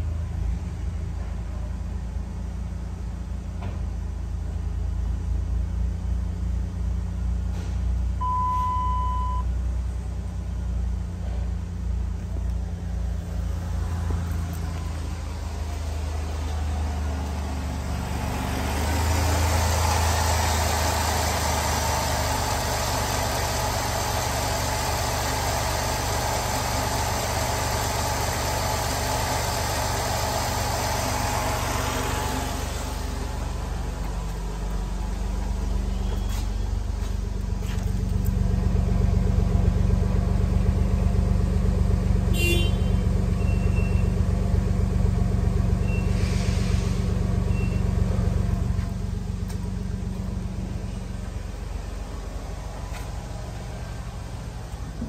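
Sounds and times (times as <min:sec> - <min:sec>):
car engine idling: 0:00.0 - 0:55.0
short beep: 0:08.2 - 0:09.5.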